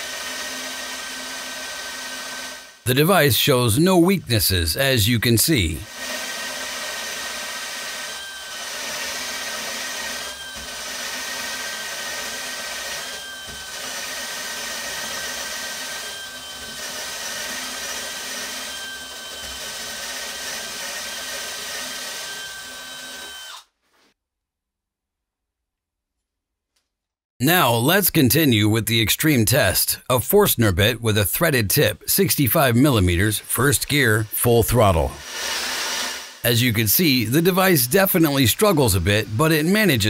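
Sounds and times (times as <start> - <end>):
cordless drill boring into wood: 0.0 - 2.8, 5.8 - 23.7, 35.2 - 36.4.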